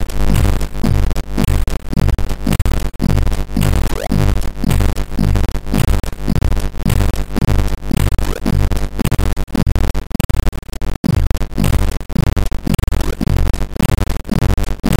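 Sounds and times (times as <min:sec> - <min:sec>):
kick drum: 0:00.0 - 0:09.9, 0:11.1 - 0:14.6.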